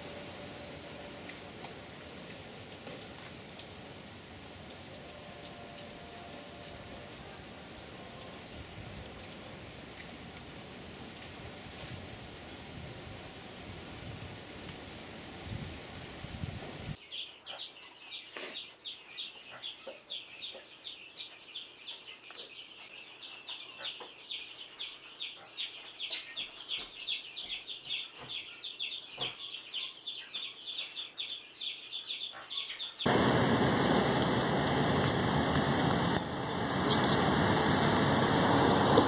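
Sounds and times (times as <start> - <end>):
steady rushing noise: 33.1 - 39.0.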